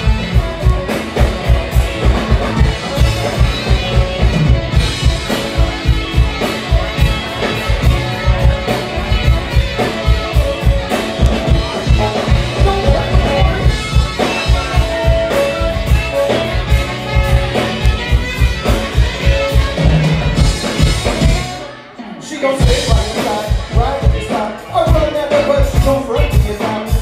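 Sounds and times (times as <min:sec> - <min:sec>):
drum kit beat: 0:00.0 - 0:21.7, 0:22.6 - 0:27.0
electric guitar: 0:00.0 - 0:27.0
saxophone: 0:00.0 - 0:27.0.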